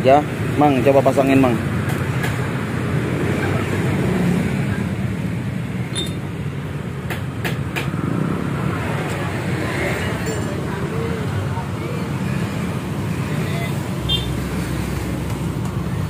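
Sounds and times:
low rumble of road traffic: 0.0 - 16.0
short metallic clicks: 5.9 - 6.2.

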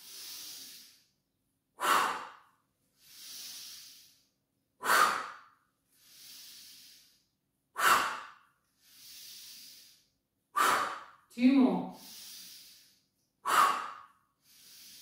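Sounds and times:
woman inhaling softly: 0.0 - 1.2, 3.0 - 5.3, 5.9 - 11.0, 11.9 - 15.0
woman exhaling forcefully: 1.8 - 4.2, 4.8 - 5.5, 7.8 - 10.0, 10.6 - 11.2, 13.4 - 15.0.

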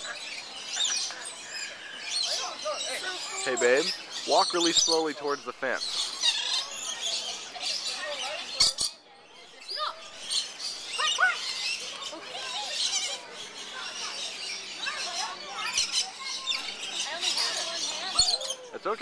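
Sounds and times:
parrots chattering: 0.0 - 9.0, 9.6 - 18.8.

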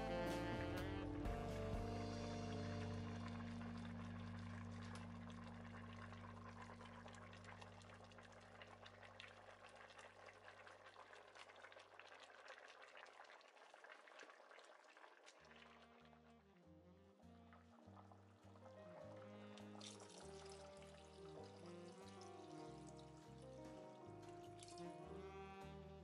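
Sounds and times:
background music low tones: 0.0 - 8.9, 16.2 - 26.0
soup bubbling in pot: 2.6 - 16.4, 17.5 - 24.9.

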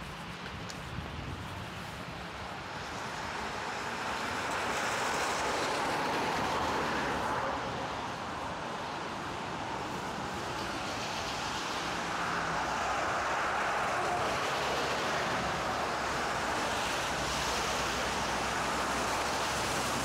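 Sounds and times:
traffic on wet street: 0.0 - 20.0.

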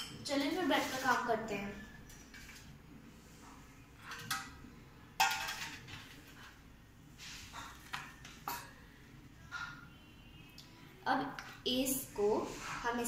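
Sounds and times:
utensil clinking on plate and bowl: 5.2 - 6.0.

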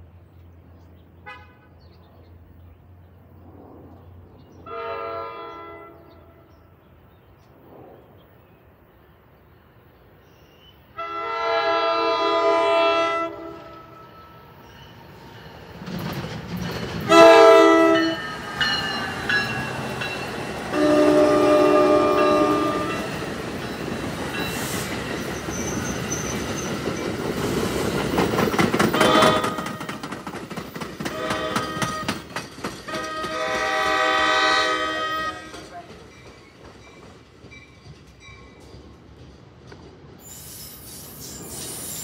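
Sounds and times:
train air horn blasts: 4.6 - 6.5, 11.0 - 14.3, 17.1 - 18.2, 20.7 - 23.2, 29.0 - 29.9, 31.1 - 32.2, 32.9 - 35.6
train wheels rumbling on rails: 11.6 - 42.0.

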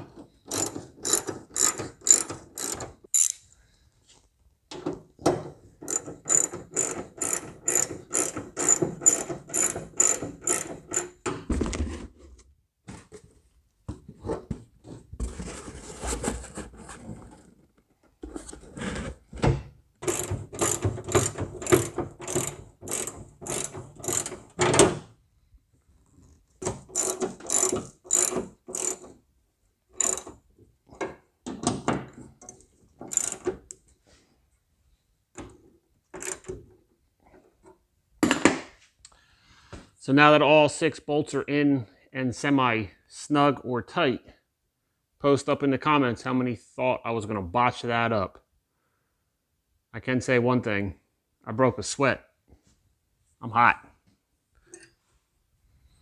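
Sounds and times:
socket ratchet clicking: 0.5 - 3.4, 5.8 - 11.2, 20.0 - 24.5, 26.9 - 29.1, 30.0 - 30.4, 33.1 - 33.5, 36.2 - 36.5.

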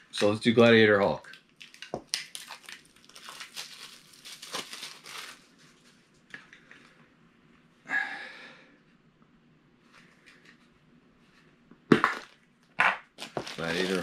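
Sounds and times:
packaging crinkling and rustling: 1.4 - 6.0, 13.2 - 14.0.

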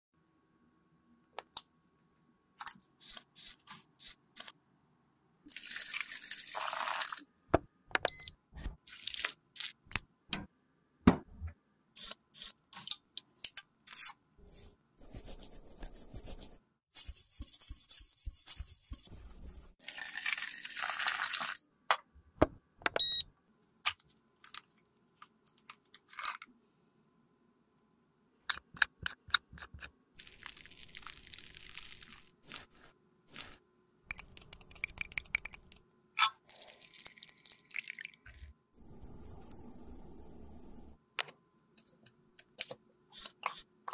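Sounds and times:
scratchy rubbing noise: 14.5 - 19.8.

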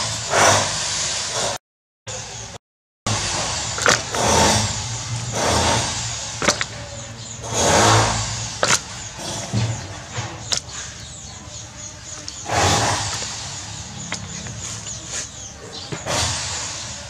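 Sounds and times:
wet slaps in plastic basin: 3.8 - 4.3, 6.4 - 6.8, 8.5 - 11.0.

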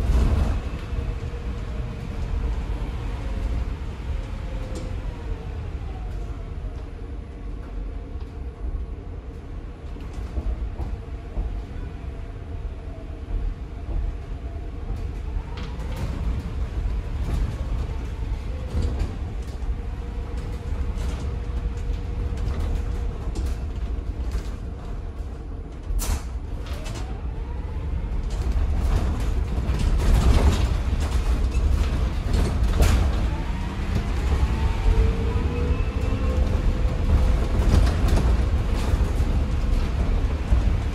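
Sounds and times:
bus road rumble: 0.0 - 40.9
interior panels creaking and rattling: 9.2 - 40.9.

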